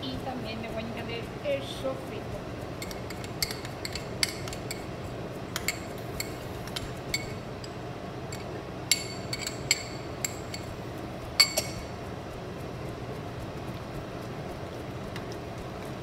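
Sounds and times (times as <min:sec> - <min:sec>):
metal spoon clinking on glass jar: 0:02.8 - 0:04.9, 0:05.5 - 0:10.7, 0:11.4 - 0:11.9.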